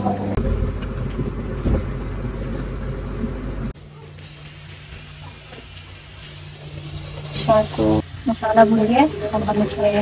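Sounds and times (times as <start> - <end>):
gas stove hiss: 3.8 - 10.0.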